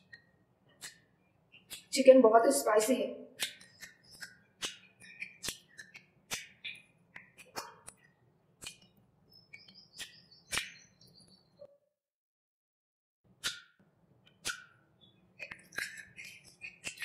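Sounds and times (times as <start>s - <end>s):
mouth chewing with wet smacks: 3.4s - 8.9s, 15.4s - 17.0s.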